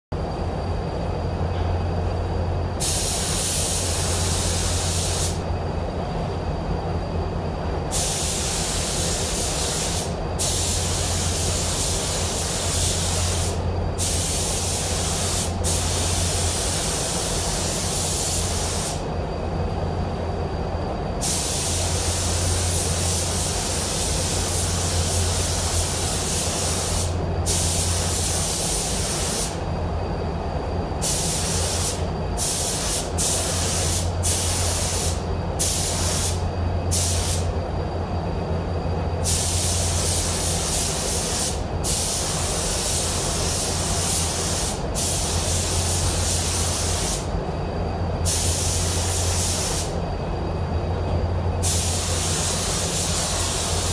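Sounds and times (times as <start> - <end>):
air system hum: 0.1 - 53.9
spray gun hissing: 2.8 - 5.4, 7.9 - 19.1, 21.2 - 29.6, 31.0 - 37.5, 39.2 - 47.3, 48.2 - 50.0, 51.6 - 53.9.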